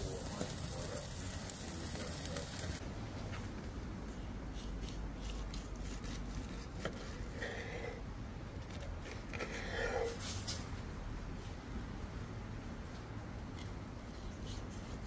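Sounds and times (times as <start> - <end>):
knife slicing steak on a board: 4.6 - 7.9.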